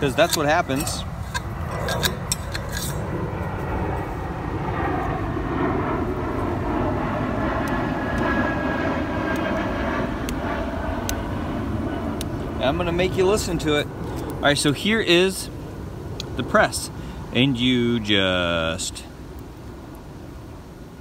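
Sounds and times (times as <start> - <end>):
airplane drone: 0.0 - 21.0.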